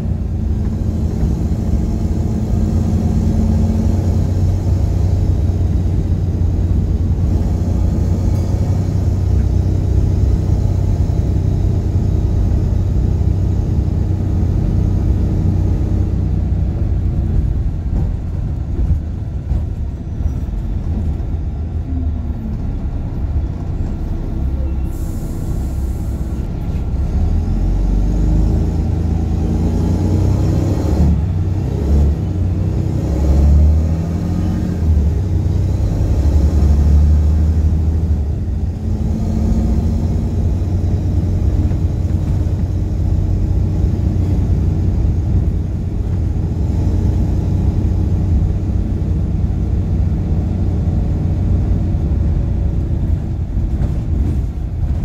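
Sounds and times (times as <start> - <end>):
bus diesel engine rumble: 0.0 - 55.0.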